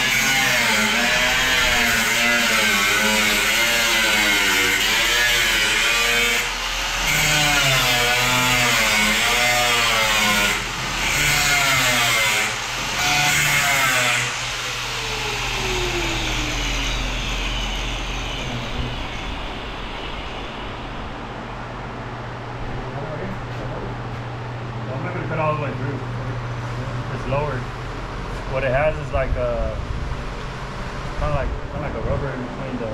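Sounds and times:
angle grinder cutting steel: 0.0 - 20.6.

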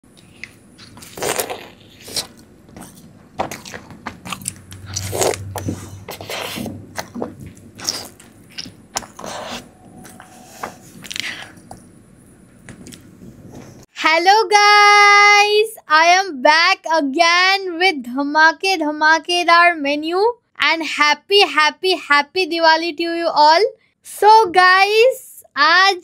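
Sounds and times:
person biting and chewing: 0.1 - 11.6.

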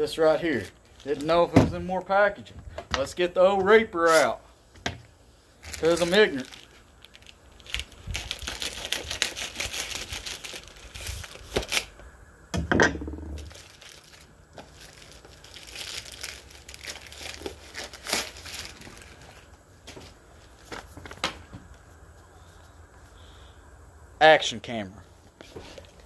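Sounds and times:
plastic bag crinkling and tearing: 5.6 - 12.0, 13.4 - 19.5.

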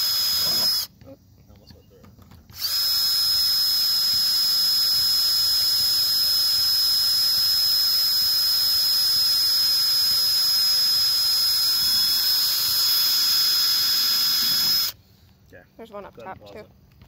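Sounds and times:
cordless drill whining: 0.0 - 0.9, 2.5 - 15.0.

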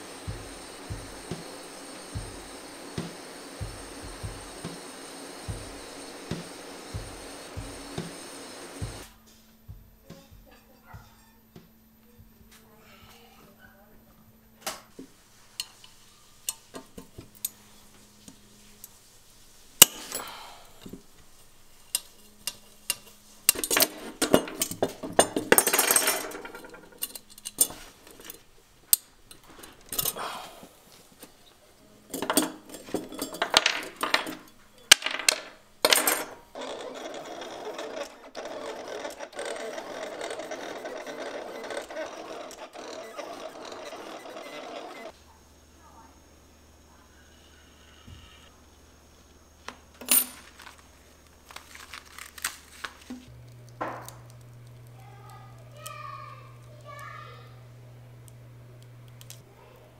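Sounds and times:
mechanical whirr: 0.0 - 9.1, 36.5 - 45.2
metal scraping: 15.1 - 30.2, 31.1 - 45.2
metal clicks and clinks: 21.8 - 30.2, 32.1 - 36.9.

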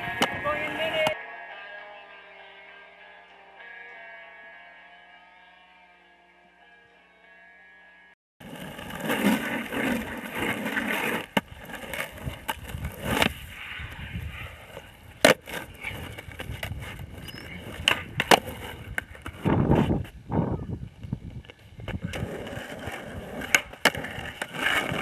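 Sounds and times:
skateboard wheels rolling: 0.0 - 1.8, 8.4 - 25.0.

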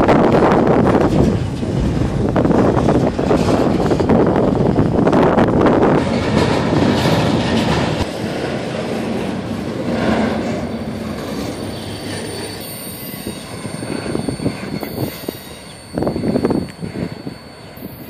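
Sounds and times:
freight train rolling past: 0.0 - 18.0
high wheel squeal: 9.8 - 18.0.

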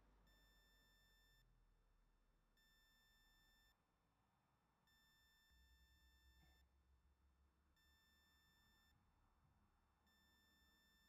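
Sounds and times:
faint high electronic whine: 0.0 - 1.5.

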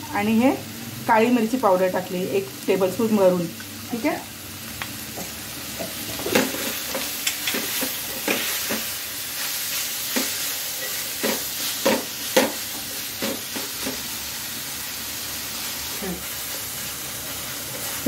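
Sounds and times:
cabbage sizzling in pan: 0.0 - 18.0
spatula scraping pan: 5.8 - 12.6.

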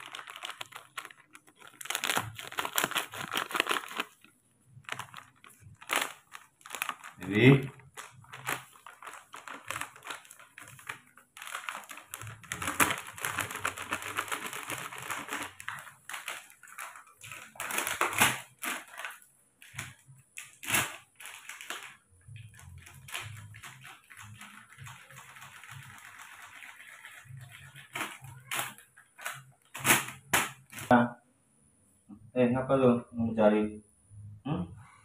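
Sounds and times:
plastic bag crinkling: 0.0 - 30.9
powder pouring from plastic bag: 0.0 - 30.9.

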